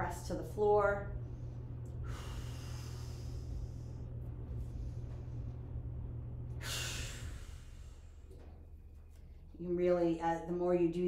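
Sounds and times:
steady low hum: 0:00.0 - 0:11.0
woman breathing: 0:01.2 - 0:05.8, 0:06.6 - 0:08.5.

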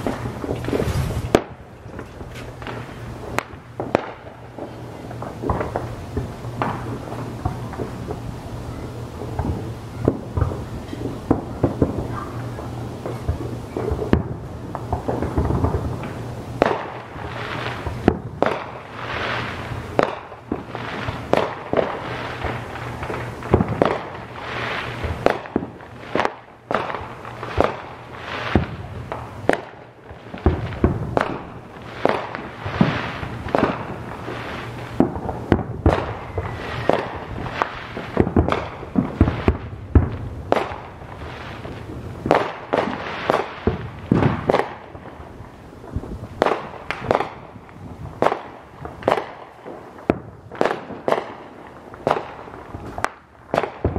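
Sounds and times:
fireworks booming: 0:00.0 - 0:53.9.

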